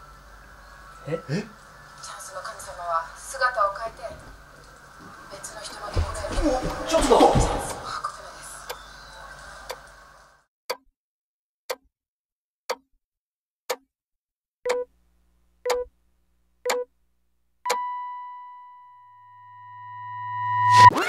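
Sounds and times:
clock ticking: 0:10.7 - 0:10.9, 0:11.7 - 0:11.9, 0:12.7 - 0:12.9, 0:14.6 - 0:14.9, 0:15.6 - 0:15.9, 0:16.6 - 0:16.9, 0:17.7 - 0:17.9
long steady high beep: 0:14.7 - 0:14.9, 0:17.7 - 0:20.9
low hum: 0:17.7 - 0:20.9.

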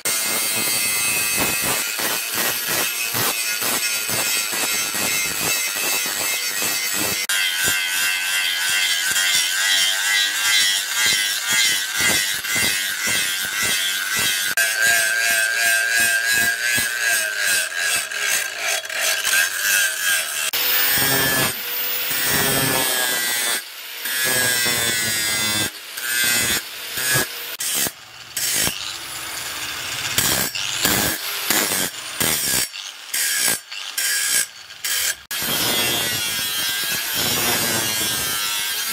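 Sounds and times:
angle grinder grinding steel: 0:00.0 - 0:38.9.

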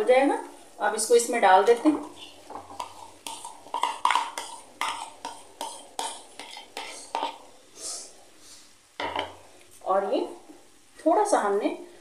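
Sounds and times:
plastic bowl knocking on pan: 0:03.9 - 0:04.4, 0:09.0 - 0:09.3.

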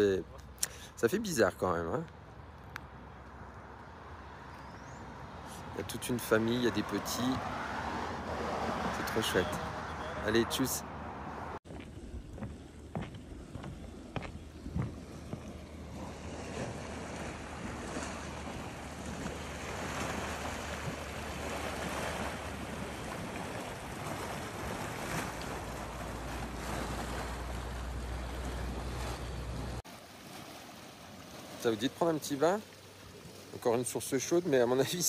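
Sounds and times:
footsteps on wooden boardwalk: 0:11.7 - 0:19.4
water churning and bubbling: 0:12.5 - 0:33.6.

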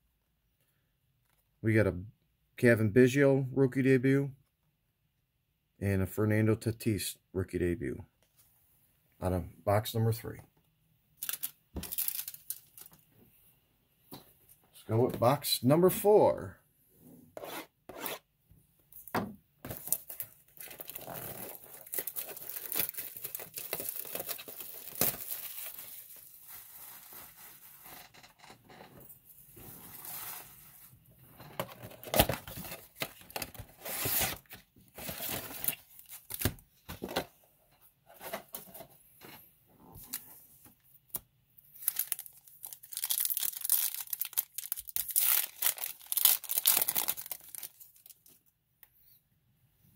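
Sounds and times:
foil packs crinkling: 0:11.2 - 0:12.9, 0:19.7 - 0:27.6, 0:41.8 - 0:48.4.

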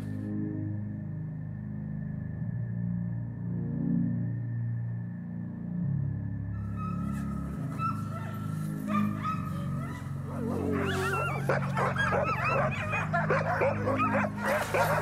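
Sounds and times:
background music: 0:00.0 - 0:15.0
sled dogs yelping: 0:06.6 - 0:15.0.

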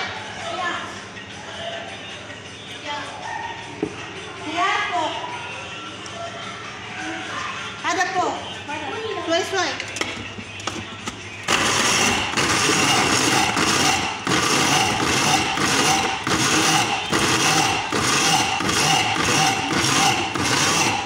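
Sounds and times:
electric grinder whirring: 0:11.4 - 0:21.0.

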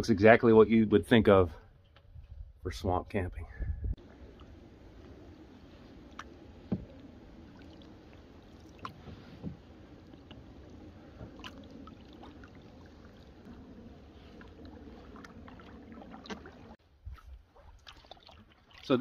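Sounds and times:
paddle strokes in water: 0:04.0 - 0:19.0.

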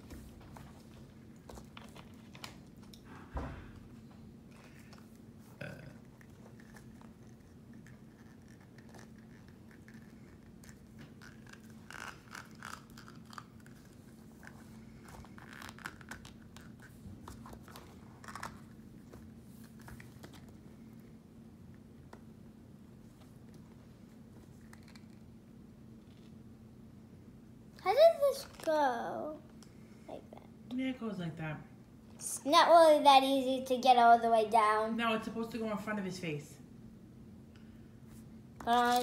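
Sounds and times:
low steady hum: 0:00.0 - 0:39.0
plastic wrappers crinkling: 0:38.6 - 0:39.0.

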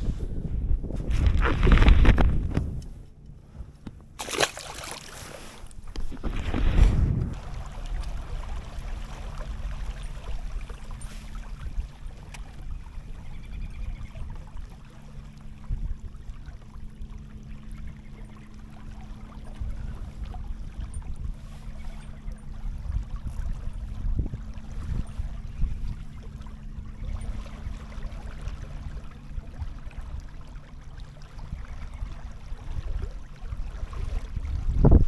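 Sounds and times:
thin steady hum: 0:00.0 - 0:35.0
water gurgling around kayak: 0:00.8 - 0:02.8, 0:04.2 - 0:35.0
loud knock or splash: 0:04.2 - 0:05.1
low rumble: 0:05.7 - 0:35.0.

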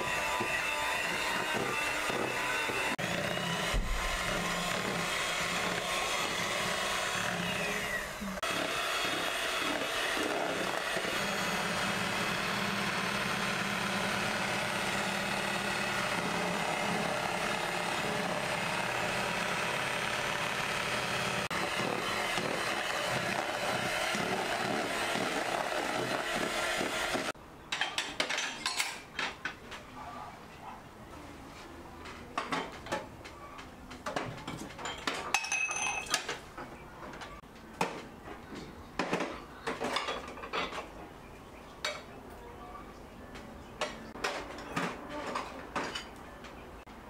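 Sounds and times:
electric hand mixer running: 0:00.0 - 0:27.4.

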